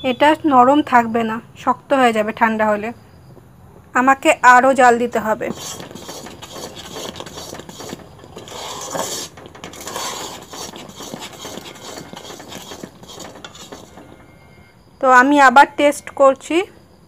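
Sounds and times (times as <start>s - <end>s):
spatula scraping and stirring syrup: 5.4s - 14.4s
syrup boiling: 5.5s - 14.2s.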